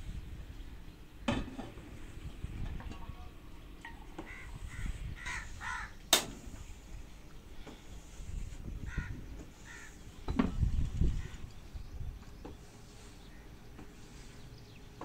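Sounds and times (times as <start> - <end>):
crows cawing: 4.2 - 6.0, 8.8 - 10.0.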